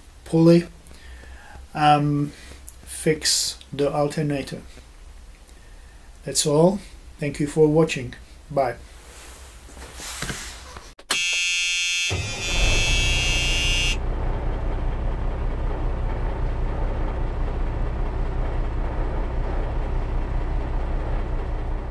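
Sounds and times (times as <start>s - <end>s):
harsh buzzing tone: 11.1s - 14.1s
steady low rumble: 14.0s - 21.9s.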